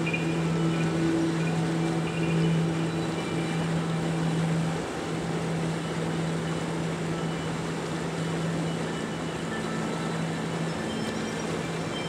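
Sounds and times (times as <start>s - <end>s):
low hum: 0.0s - 12.0s
river water rushing: 0.0s - 12.0s.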